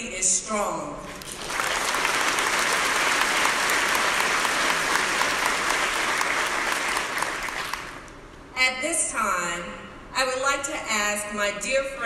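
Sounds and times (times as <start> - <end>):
audience applauding: 1.1 - 8.1.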